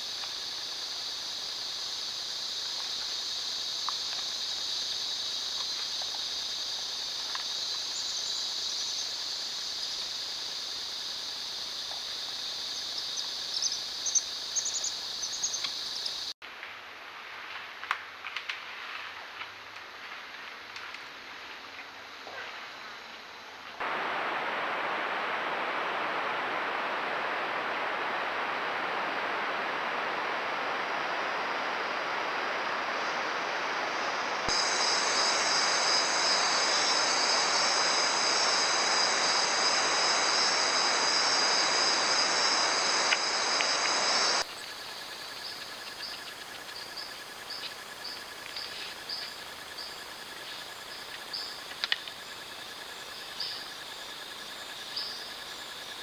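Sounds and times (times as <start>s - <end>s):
high-pitched insect chorus: 0.0s - 16.4s, 22.7s - 56.0s
heavy rain hiss: 0.0s - 16.9s, 23.8s - 45.9s.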